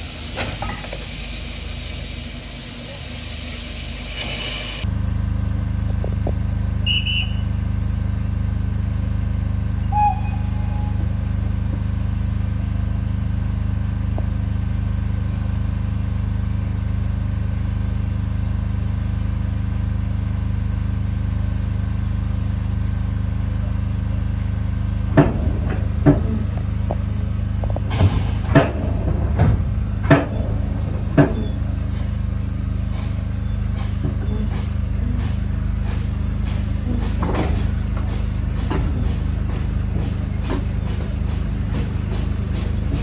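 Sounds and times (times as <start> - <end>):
train low rumble: 0.0 - 43.0
high-pitched whistle blast: 6.9 - 7.5, 9.9 - 11.0.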